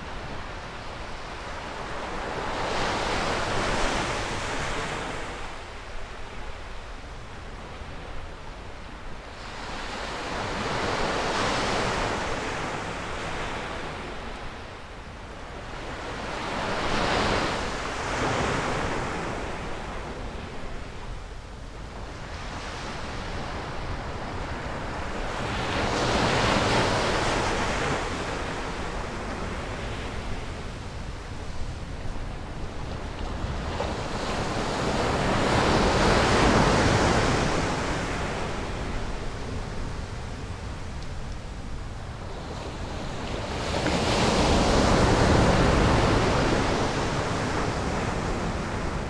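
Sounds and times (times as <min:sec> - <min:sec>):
wind rumble on microphone: 0:00.0 - 0:49.0.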